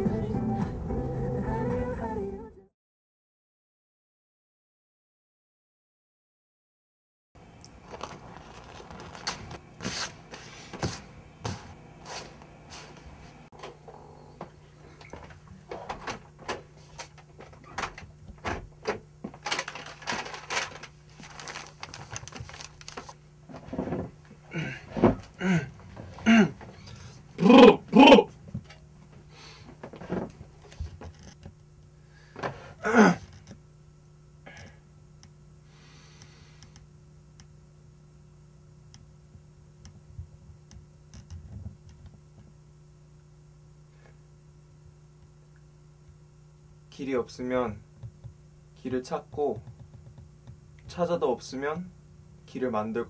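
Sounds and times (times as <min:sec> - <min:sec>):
low room tone hum: 0:07.4 - 0:53.0
paper rustling: 0:07.8 - 0:13.0, 0:19.3 - 0:24.0
footsteps: 0:07.8 - 0:17.7.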